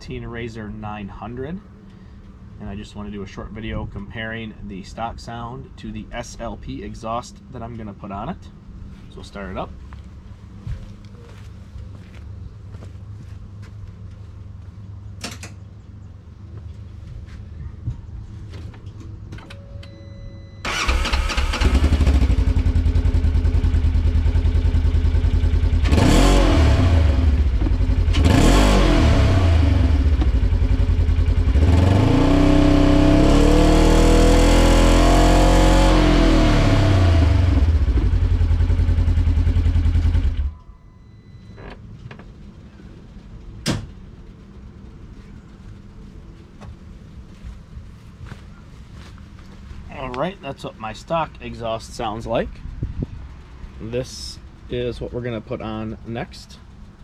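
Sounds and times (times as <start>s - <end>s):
engine idling and revving: 20.6s - 40.6s.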